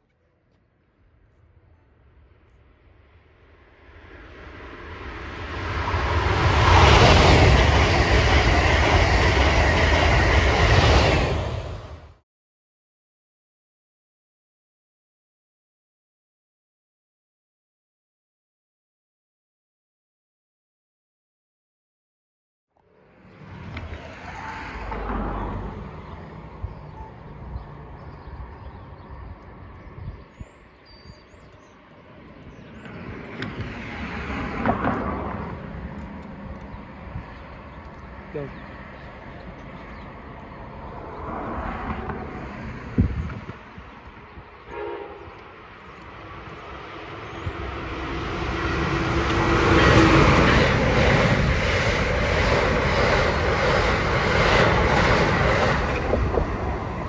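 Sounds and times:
road vehicle passing: 0:03.0 - 0:10.1, 0:22.8 - 0:57.0
train wheels rumbling on rail: 0:04.2 - 0:12.1, 0:32.2 - 0:57.0
birds chirping: 0:24.9 - 0:33.8, 0:36.4 - 0:41.3, 0:43.1 - 0:48.8.

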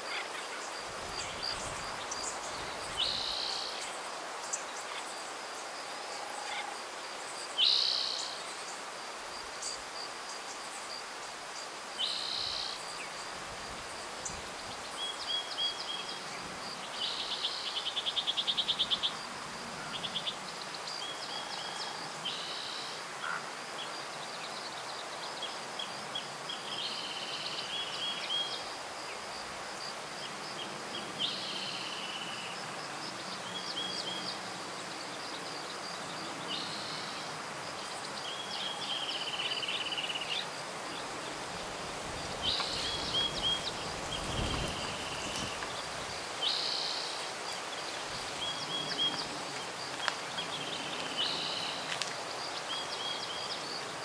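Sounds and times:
soft outdoor hiss: 0:00.0 - 0:54.0
birds singing: 0:42.2 - 0:54.0.

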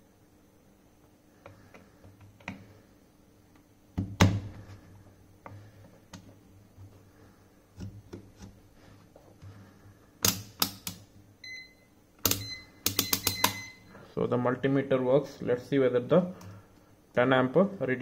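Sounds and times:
short high beep from meter: 0:11.4 - 0:14.0.

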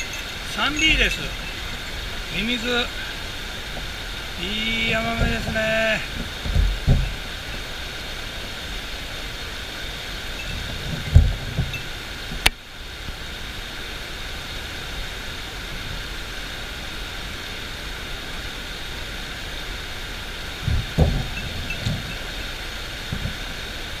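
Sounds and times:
low bumps: 0:00.0 - 0:09.2, 0:10.1 - 0:12.5, 0:20.6 - 0:22.4
river rapids over stones: 0:00.0 - 0:24.0.

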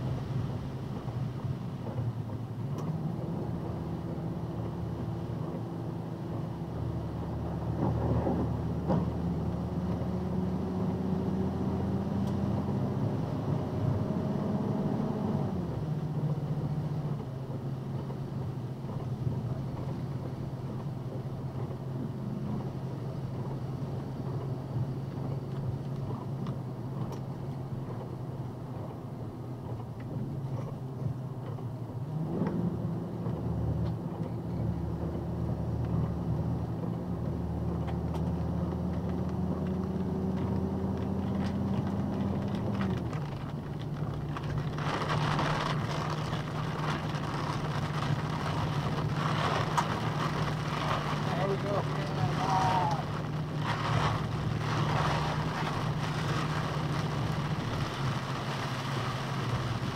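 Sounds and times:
truck engine: 0:00.0 - 0:59.9
tyres hissing on wet pavement: 0:44.2 - 0:59.9.

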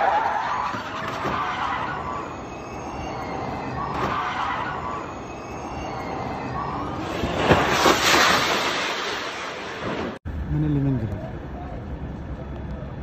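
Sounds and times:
car crashing into wall: 0:07.1 - 0:10.2.

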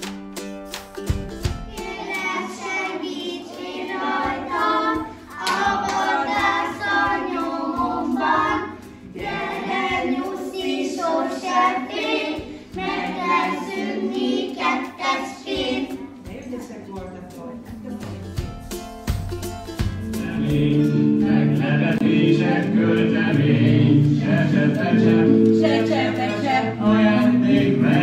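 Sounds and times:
young children singing: 0:01.6 - 0:16.2, 0:20.2 - 0:28.0.

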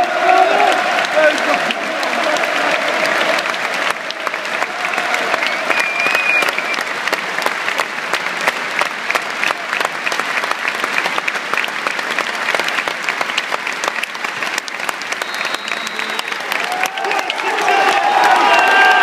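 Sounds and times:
stadium crowd applauding: 0:00.0 - 0:19.0.

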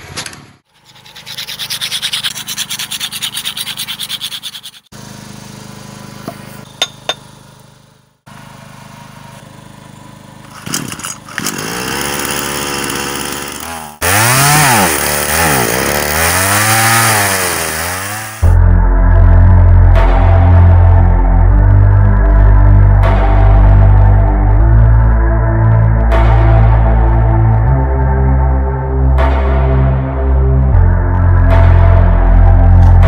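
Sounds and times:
small engine revving: 0:10.3 - 0:18.6.

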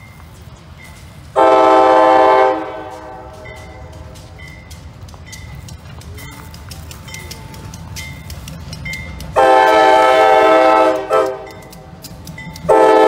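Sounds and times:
locomotive air horn blast: 0:01.3 - 0:04.2, 0:09.4 - 0:11.6, 0:12.7 - 0:13.0.

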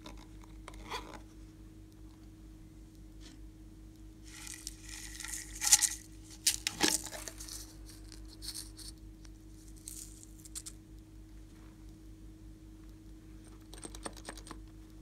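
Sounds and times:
slime and clay crackling: 0:04.3 - 0:08.8.

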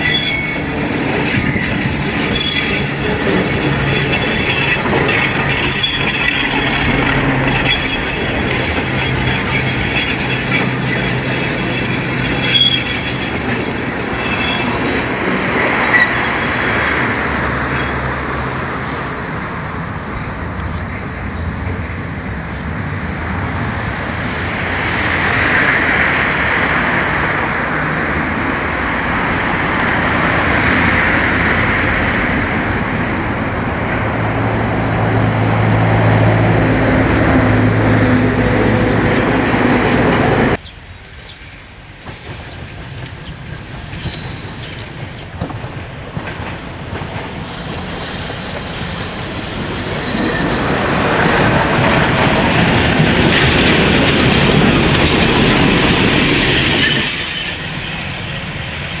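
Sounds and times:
tram wheels squealing on rails: 0:00.0 - 0:22.6, 0:24.2 - 0:59.0
clattering over rail joints: 0:00.5 - 0:15.3.

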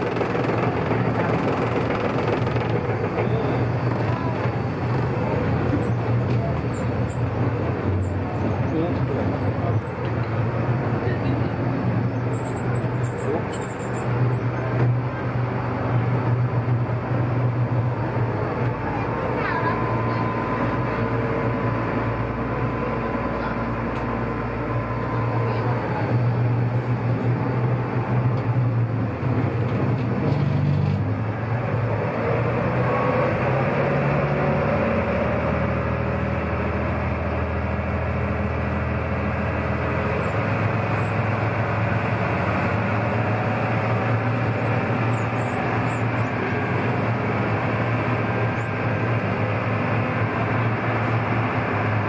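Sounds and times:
boat engine droning: 0:00.0 - 0:29.3.

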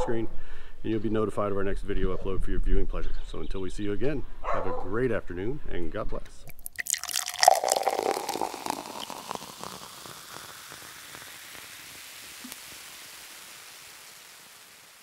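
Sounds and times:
splashy crackles and clicks: 0:06.6 - 0:15.0
long hiss: 0:07.3 - 0:15.0.

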